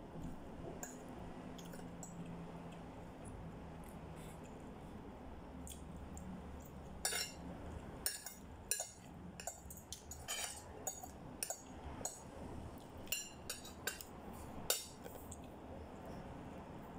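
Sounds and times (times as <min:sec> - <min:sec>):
cutlery clinking on a plate: 0:07.0 - 0:07.4, 0:08.1 - 0:12.2, 0:13.1 - 0:14.1.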